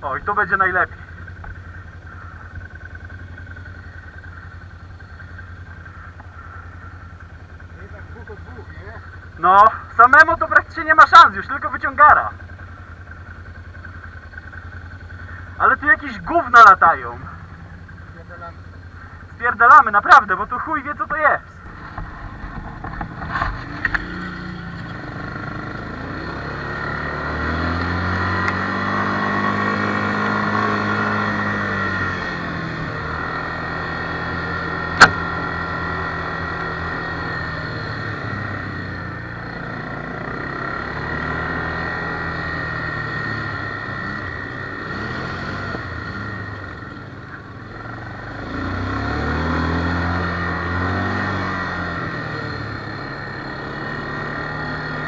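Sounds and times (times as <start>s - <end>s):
quad bike engine revving: 0.0s - 55.0s
sharp knock: 35.0s - 35.2s.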